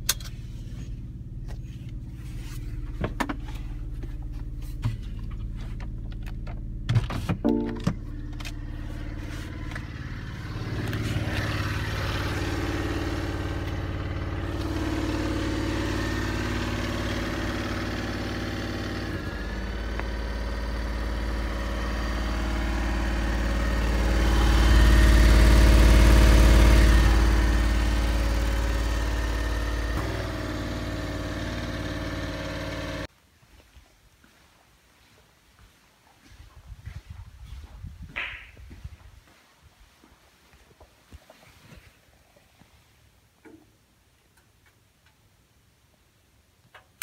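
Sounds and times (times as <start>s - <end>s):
small petrol engine running: 7.5s - 33.1s.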